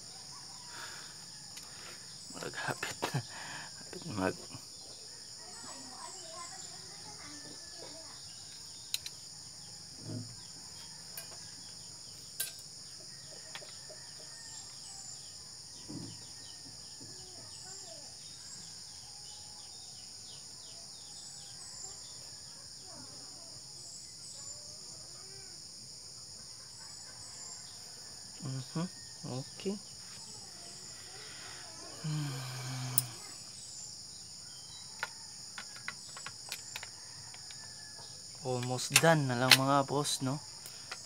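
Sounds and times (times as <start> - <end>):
high-pitched insect chorus: 0.0 - 41.0
sharp clicks of handled parts: 8.9 - 9.2, 12.4 - 12.7, 35.0 - 37.6, 38.6 - 39.7.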